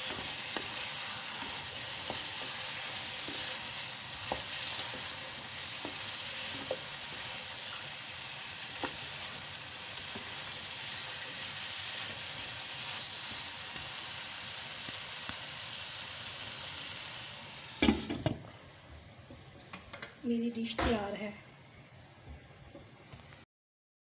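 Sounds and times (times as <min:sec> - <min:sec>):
wooden spoon scraping a pan: 0:00.0 - 0:14.0
meat sizzling in oil in a pan: 0:00.0 - 0:18.4.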